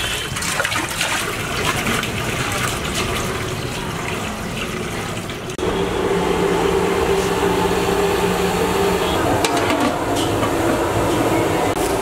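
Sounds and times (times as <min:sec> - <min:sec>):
water boiling in a pot: 0:00.0 - 0:12.0
gas burner roaring: 0:05.5 - 0:12.0.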